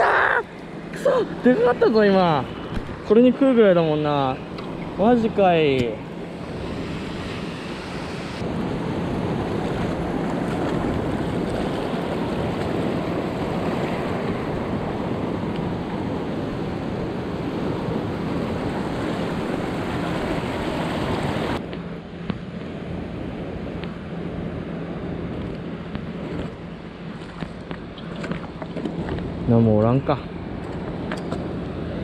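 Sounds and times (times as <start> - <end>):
sea water washing over reef: 5.4 - 21.6.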